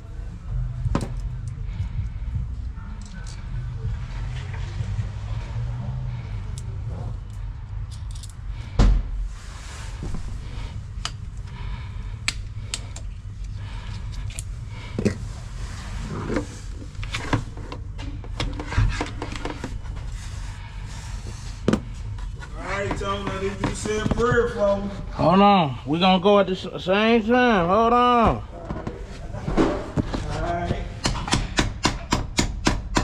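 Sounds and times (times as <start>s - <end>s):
low rumble: 0.0s - 18.3s.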